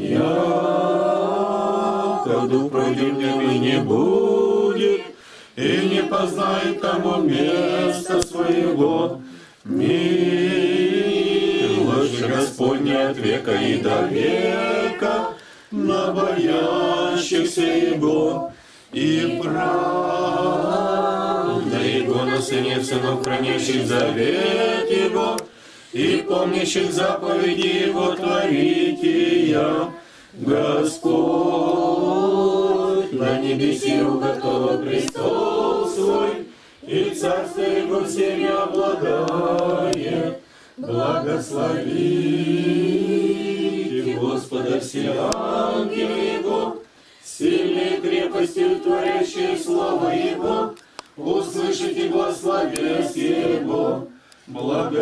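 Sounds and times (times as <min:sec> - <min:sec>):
congregation singing a hymn: 0:00.0 - 0:55.0.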